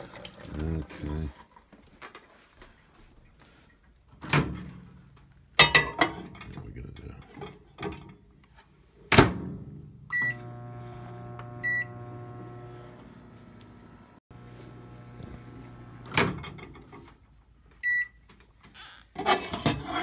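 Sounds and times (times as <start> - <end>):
microwave humming: 10.1 - 17.1.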